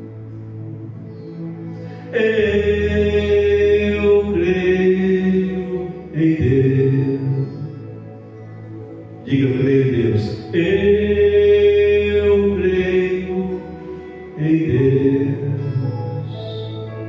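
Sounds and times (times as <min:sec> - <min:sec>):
sustained instrumental backing: 0:00.0 - 0:17.0.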